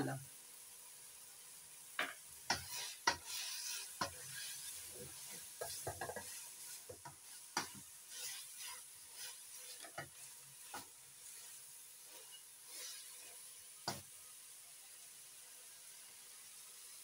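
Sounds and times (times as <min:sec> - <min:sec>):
meat sizzling in oil: 0:00.0 - 0:17.0
spatula scraping and tapping pot: 0:02.0 - 0:14.1.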